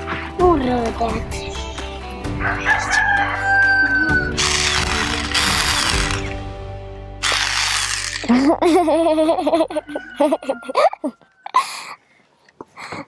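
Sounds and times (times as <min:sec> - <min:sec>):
background music: 0:00.0 - 0:11.2
electric hand mixer buzzing: 0:04.3 - 0:06.4, 0:07.2 - 0:08.5.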